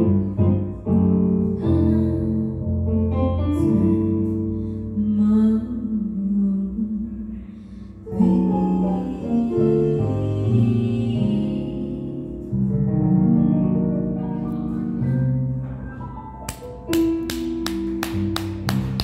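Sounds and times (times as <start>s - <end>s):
keyboard playing piano chords: 0.0s - 6.3s, 7.6s - 19.0s.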